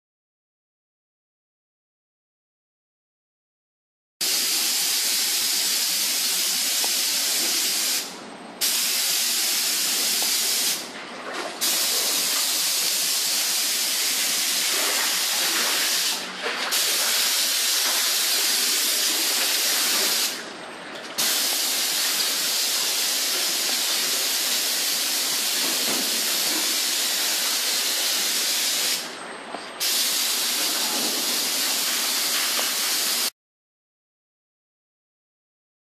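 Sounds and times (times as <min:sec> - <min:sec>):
paint spray gun hissing: 0:04.2 - 0:10.8, 0:21.2 - 0:29.1, 0:29.8 - 0:33.3.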